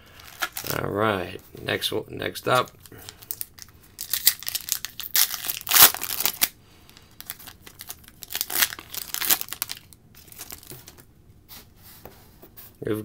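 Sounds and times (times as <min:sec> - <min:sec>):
wrapper tearing and crinkling: 0:00.2 - 0:00.8, 0:02.6 - 0:06.6, 0:07.2 - 0:11.0.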